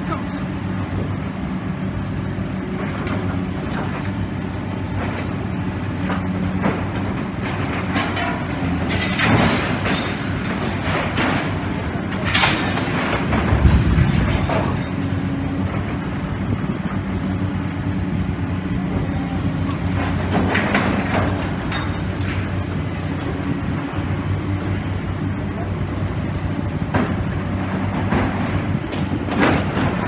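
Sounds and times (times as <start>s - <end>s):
excavator diesel engine running: 0.0s - 30.0s
metal and rubble scraping and crashing: 6.6s - 16.0s, 26.9s - 30.0s.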